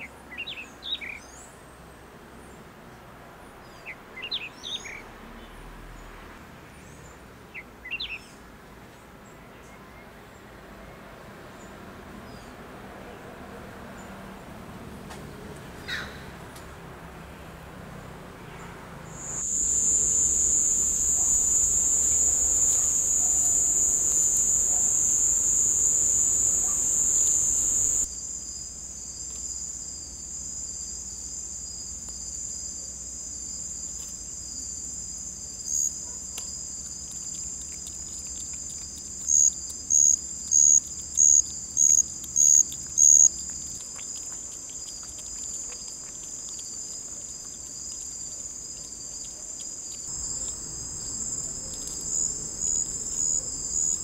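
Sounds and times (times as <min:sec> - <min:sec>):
insect chirping loudly: 0:19.1 - 0:54.0
lower insect trill: 0:19.1 - 0:54.0
high-pitched insect trilling: 0:19.2 - 0:54.0.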